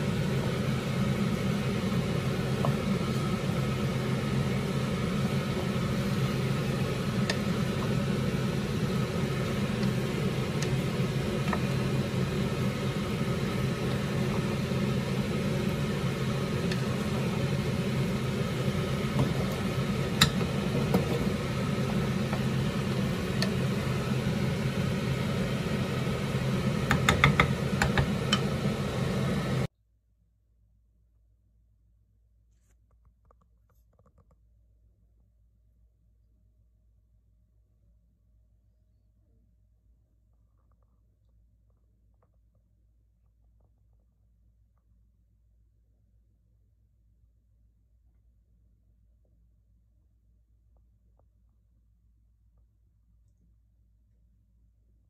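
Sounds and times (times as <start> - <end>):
low mechanical hum: 0.0 - 29.7
wooden spatula tapping a pan: 19.0 - 24.0, 26.8 - 28.6.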